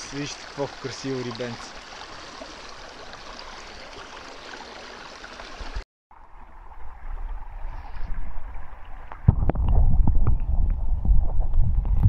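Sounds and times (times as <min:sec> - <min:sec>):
river running over pebbles: 0:00.0 - 0:07.6.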